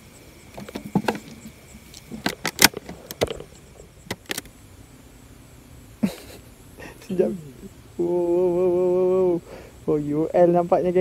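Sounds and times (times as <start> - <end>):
clicks and knocks of fishing gear: 0.6 - 3.5.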